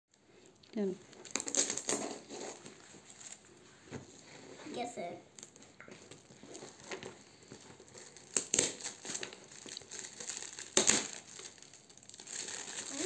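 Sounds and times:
foil wrapping paper crinkling: 0:00.4 - 0:03.6, 0:05.3 - 0:13.0
wrapping paper tearing: 0:01.2 - 0:03.4, 0:05.3 - 0:13.0.

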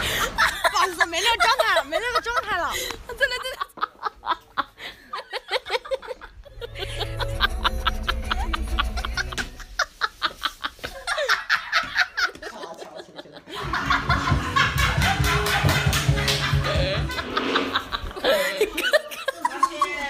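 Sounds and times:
person snickering: 0:04.6 - 0:11.5, 0:15.8 - 0:19.1
background music with bass line: 0:06.6 - 0:09.7, 0:13.6 - 0:17.8.

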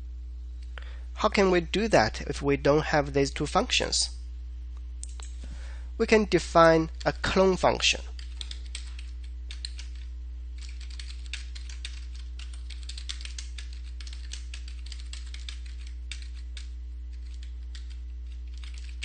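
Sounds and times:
computer keyboard typing: 0:08.1 - 0:19.0.

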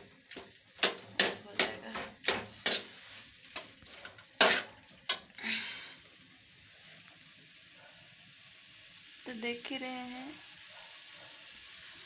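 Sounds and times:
metal spoon clacking on pan: 0:00.3 - 0:02.9, 0:03.6 - 0:05.3.

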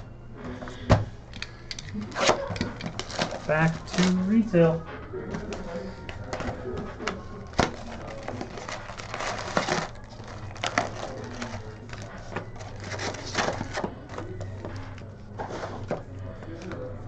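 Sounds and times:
wrappers tearing and crumpling: 0:01.9 - 0:04.5, 0:07.5 - 0:14.3.

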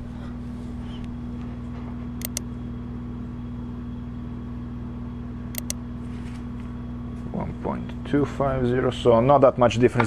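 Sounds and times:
low machine hum: 0:00.0 - 0:10.0.

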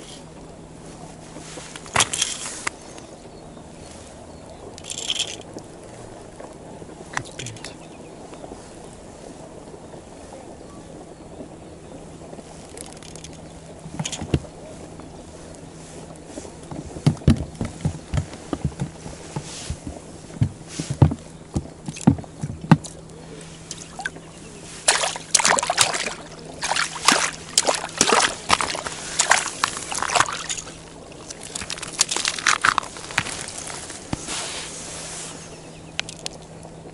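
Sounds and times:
winter jacket rustling: 0:00.0 - 0:04.4, 0:13.4 - 0:21.8, 0:23.2 - 0:36.9.

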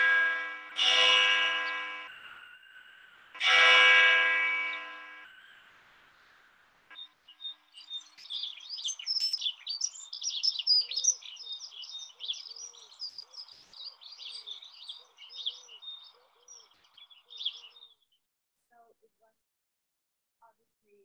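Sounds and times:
small birds chirping: 0:04.7 - 0:18.2.

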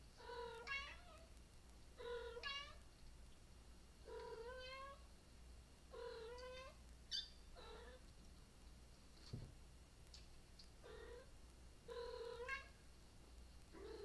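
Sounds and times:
cat meowing: 0:00.4 - 0:01.2, 0:11.9 - 0:12.7
soft thump: 0:09.3 - 0:09.6.

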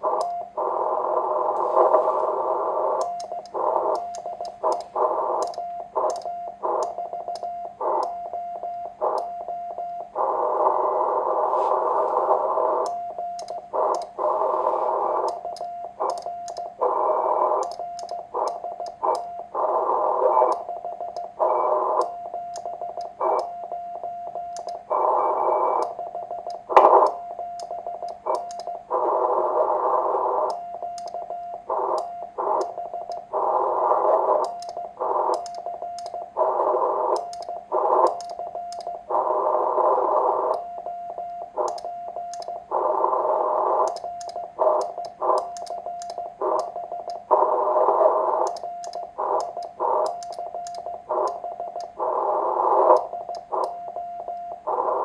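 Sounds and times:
morse code tone: 0:00.3 - 0:55.0
radio hiss bursts: 0:00.6 - 0:04.0, 0:10.2 - 0:12.8, 0:13.7 - 0:15.4, 0:31.7 - 0:35.4, 0:36.2 - 0:38.2, 0:39.0 - 0:40.5, 0:42.6 - 0:43.9, 0:44.5 - 0:45.5, 0:46.2 - 0:48.5, 0:49.1 - 0:50.1, 0:51.0 - 0:53.7
sharp radio clicks: 0:01.8 - 0:08.2, 0:11.8 - 0:23.5, 0:24.6 - 0:40.7, 0:41.5 - 0:55.0.

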